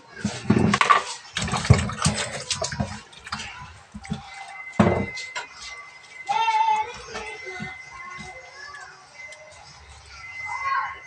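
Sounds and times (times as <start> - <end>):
water splashing in metal sink: 0.0 - 5.6.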